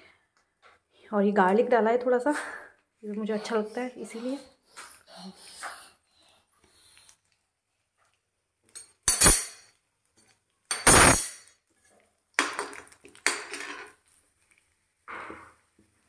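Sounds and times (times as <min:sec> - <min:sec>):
metal utensils clanking on a pan: 0:08.8 - 0:09.7.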